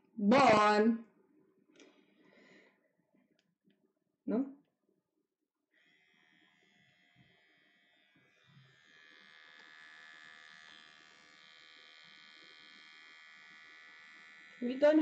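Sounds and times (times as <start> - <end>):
faint motor buzz: 5.8 - 15.0.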